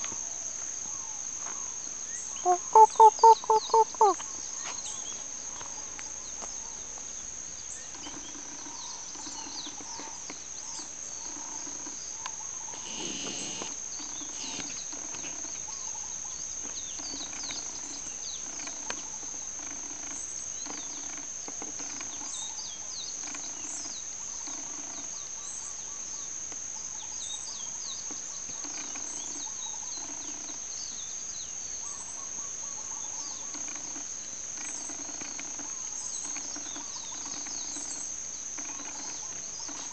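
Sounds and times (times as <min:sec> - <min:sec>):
high-pitched insect trill: 0:00.0 - 0:39.9
small birds chirping: 0:00.8 - 0:39.9
chickens clucking softly: 0:02.5 - 0:04.2.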